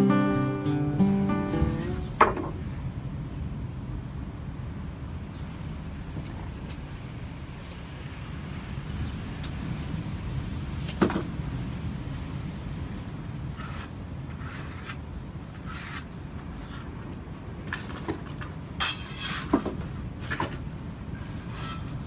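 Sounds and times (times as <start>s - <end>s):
tile saw scraping across tile: 13.6s - 15.0s, 15.6s - 16.9s, 21.5s - 22.0s.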